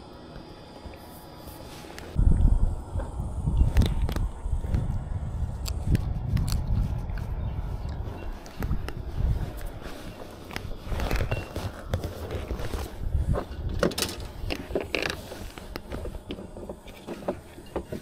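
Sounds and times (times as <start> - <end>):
low rumble: 2.1 - 14.5
handling clicks and knocks: 10.2 - 18.0.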